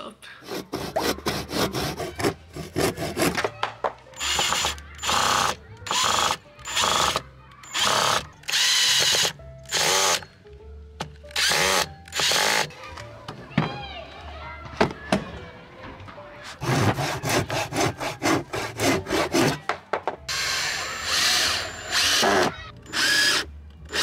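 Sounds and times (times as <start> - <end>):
handsaw rasping through wood: 0.4 - 3.5, 16.6 - 19.6
cordless drill driving screws: 4.2 - 10.2, 11.3 - 12.7, 20.3 - 24.0.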